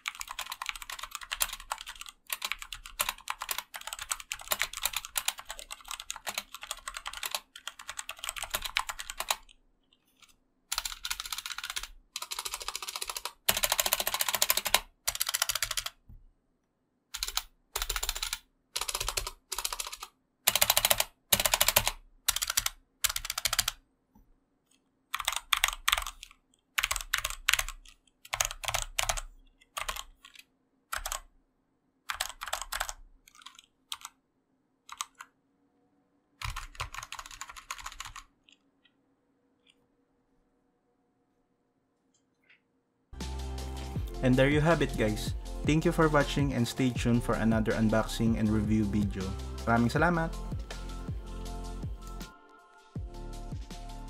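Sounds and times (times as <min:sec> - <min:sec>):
mechanical keyboard typing: 0:00.0 - 0:09.6, 0:10.2 - 0:16.0, 0:17.1 - 0:23.8, 0:25.1 - 0:31.3, 0:32.1 - 0:34.2, 0:34.9 - 0:35.3, 0:36.4 - 0:38.6.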